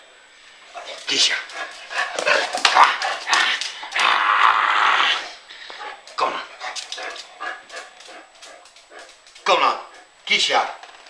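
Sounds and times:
scuffling clicks: 0.8s - 4.1s, 6.0s - 9.5s.

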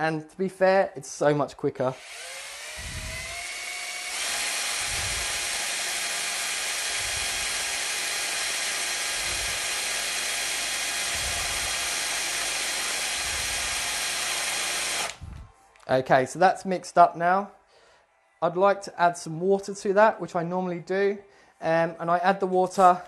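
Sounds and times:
power drill motor whine: 2.0s - 15.5s.

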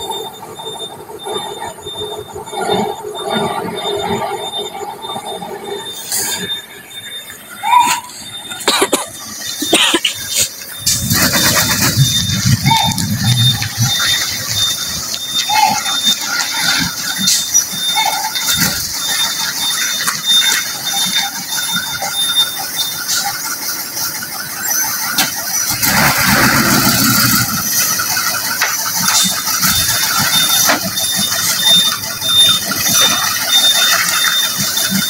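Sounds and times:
high-pitched squeal: 0.0s - 35.0s
truck diesel engine passing: 8.2s - 33.1s.

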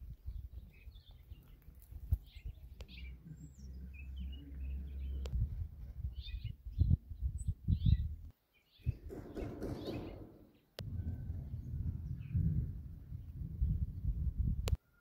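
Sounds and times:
wind buffeting microphone: 0.0s - 3.2s, 4.2s - 14.8s
small birds chirping: 0.0s - 14.2s.

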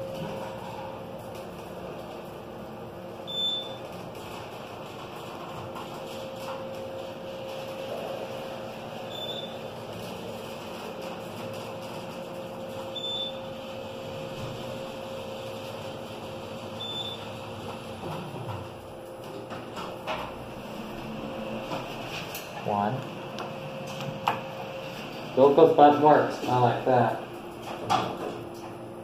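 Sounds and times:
elevator hum and rumble: 0.0s - 29.0s.

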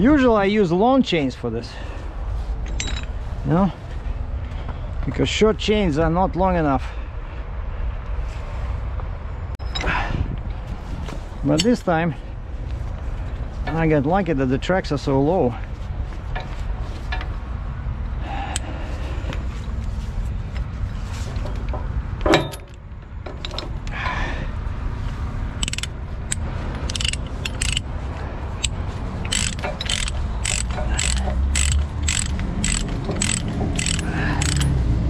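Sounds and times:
ratchet pawl clicking: 25.6s - 27.9s, 28.6s - 34.8s.

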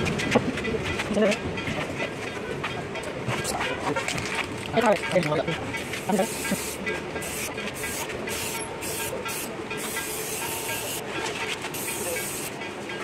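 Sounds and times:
spray paint can hissing: 6.2s - 11.0s, 11.8s - 12.5s.

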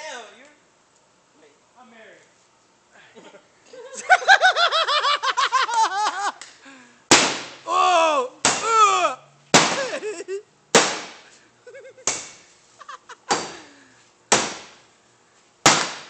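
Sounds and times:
bat banging on sheet metal: 7.1s - 7.6s, 9.6s - 9.8s, 10.7s - 11.2s, 12.0s - 12.4s, 13.3s - 13.6s, 14.3s - 14.8s, 15.6s - 16.0s.

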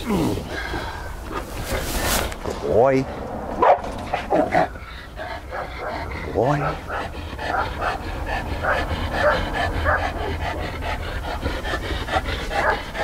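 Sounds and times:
dog panting: 4.1s - 13.0s.

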